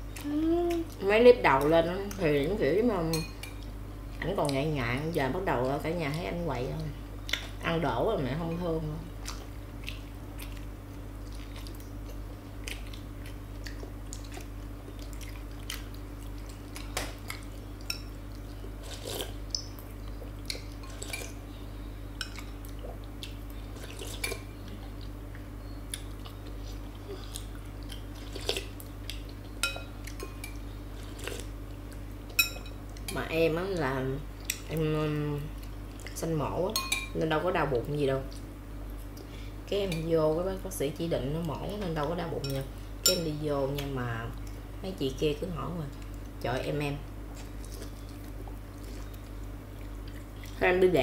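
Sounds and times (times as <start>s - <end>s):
steady low hum: 0.0s - 51.0s
chewing: 9.2s - 21.4s, 22.2s - 33.2s, 47.3s - 50.6s
spoons clinking on glass bowls: 36.8s - 37.1s.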